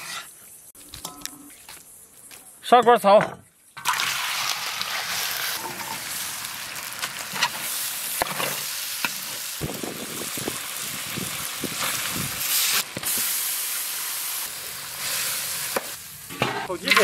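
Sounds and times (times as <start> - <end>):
metal spatula scraping a pan: 0.0 - 0.4
meat sizzling in a wok: 3.8 - 17.0.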